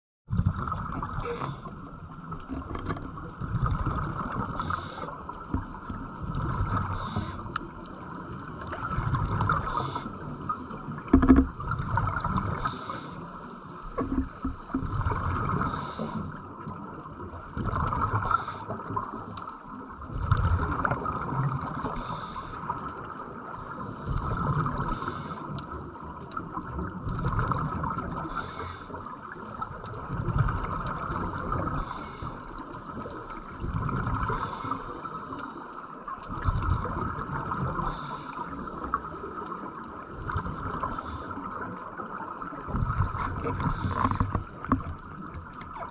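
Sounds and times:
bubbles gurgling: 0.3s - 13.1s, 13.9s - 19.2s, 20.0s - 25.4s, 26.3s - 35.1s, 36.0s - 45.9s
regulator breathing underwater: 4.4s - 5.3s, 6.8s - 7.6s, 9.5s - 10.2s, 12.4s - 13.8s, 15.5s - 16.4s, 21.8s - 22.7s, 23.6s - 25.8s, 28.2s - 29.2s, 30.9s - 33.4s, 34.2s - 35.8s, 37.7s - 39.6s, 40.2s - 41.6s, 42.3s - 44.5s.

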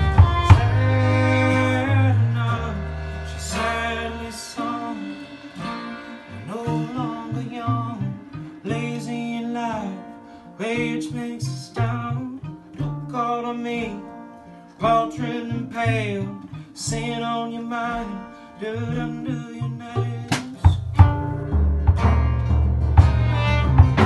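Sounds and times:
drums: 0.0s - 9.6s, 20.3s - 24.0s
acoustic guitar: 0.0s - 24.0s
fiddle: 0.0s - 24.0s.

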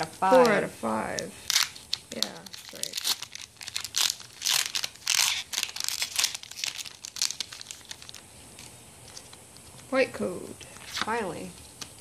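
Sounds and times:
foil wrapper crinkling: 1.0s - 9.9s.

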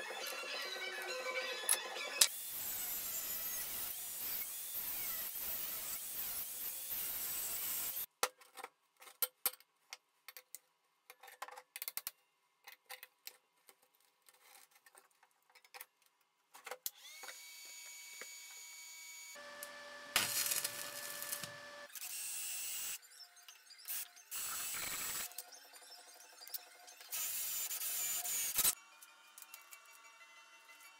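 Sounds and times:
cordless drill boring into steel: 17.0s - 23.0s
cut-off disc cutting steel: 17.0s - 23.0s.

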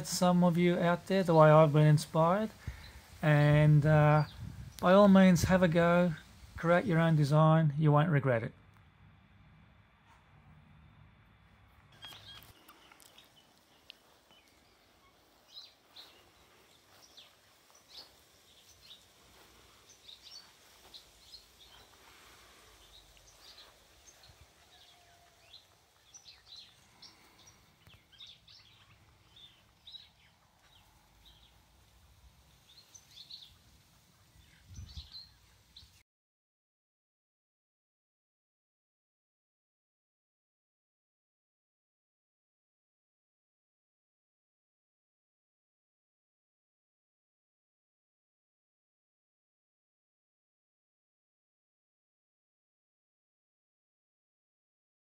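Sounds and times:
bird chirps: 11.8s - 31.6s, 32.6s - 36.0s.

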